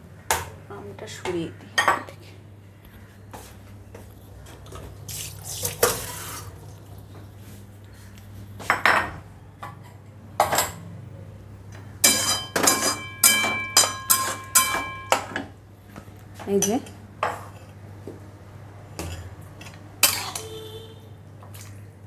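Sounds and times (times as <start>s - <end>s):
kitchen utensils clattering: 12.0s - 15.5s
metal spatula scraping steel pan: 12.1s - 15.0s.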